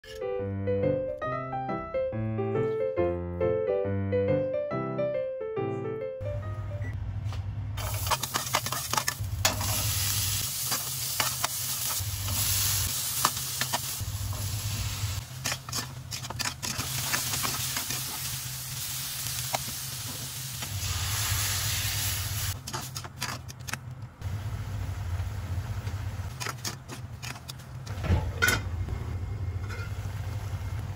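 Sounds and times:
metal ladle scraping a pan: 0:07.8 - 0:09.8, 0:15.3 - 0:18.3
food sizzling in a saucepan: 0:07.8 - 0:15.3, 0:16.7 - 0:22.6
low hum: 0:27.9 - 0:30.9.

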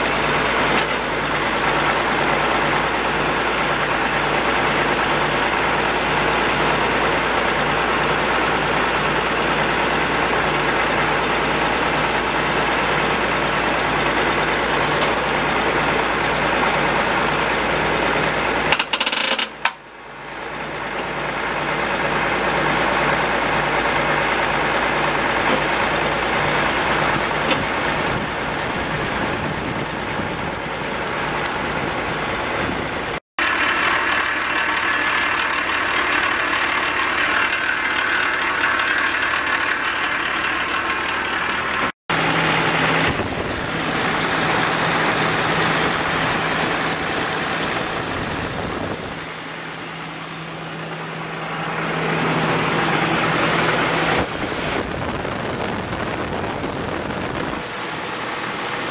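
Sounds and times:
tractor diesel engine idling: 0:00.0 - 0:58.9.

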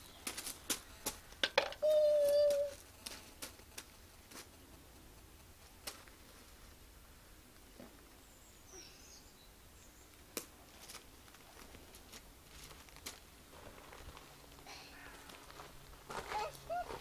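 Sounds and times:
bird chirping softly: 0:08.2 - 0:10.2.

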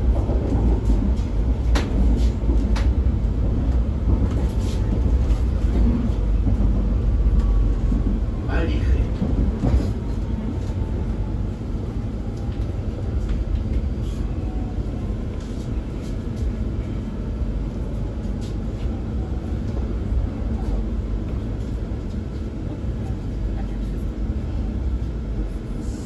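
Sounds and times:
train wheels rumbling on track: 0:00.0 - 0:26.0.

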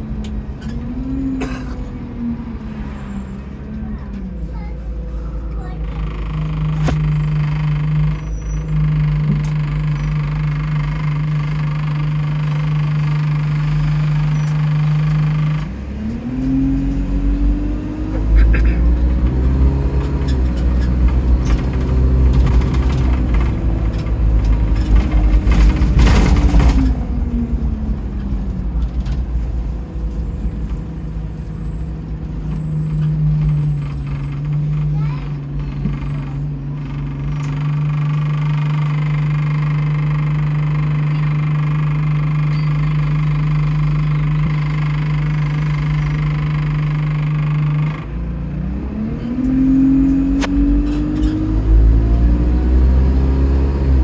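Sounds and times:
diesel bus engine idling and revving: 0:00.0 - 0:54.0.

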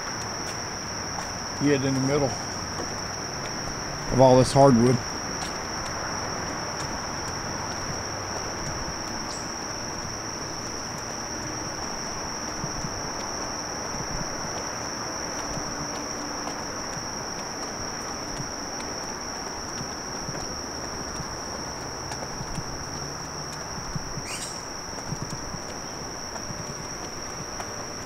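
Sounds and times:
insect chorus drone: 0:00.0 - 0:28.0
low background hiss: 0:00.0 - 0:28.0.

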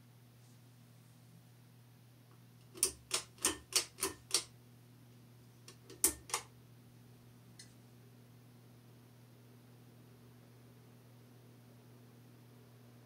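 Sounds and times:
faint low fan motor hum: 0:00.0 - 0:13.0
pull-chain switch clicks: 0:02.8 - 0:04.5, 0:05.8 - 0:06.5.

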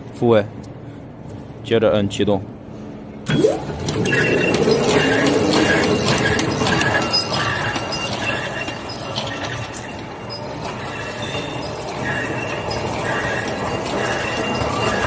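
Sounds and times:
machine gears clattering: 0:03.3 - 0:15.0
sharp clicks and rattle: 0:03.3 - 0:15.0.

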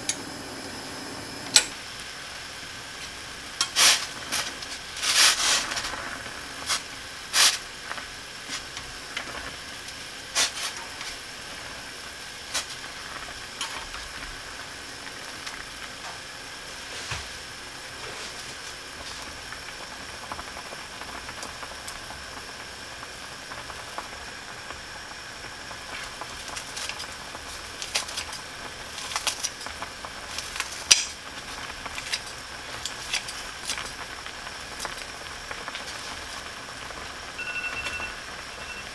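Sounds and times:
boiling pot hissing: 0:00.0 - 0:38.9.

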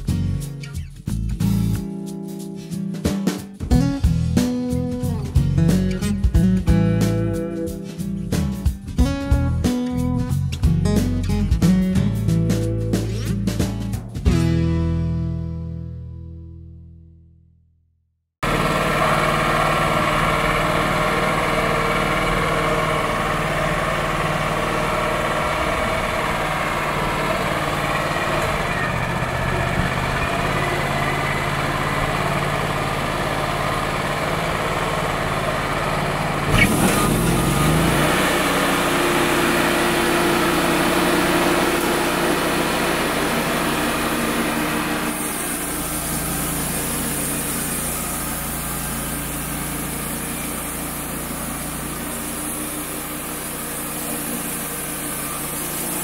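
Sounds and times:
band sawmill sawing log: 0:18.4 - 0:56.0.

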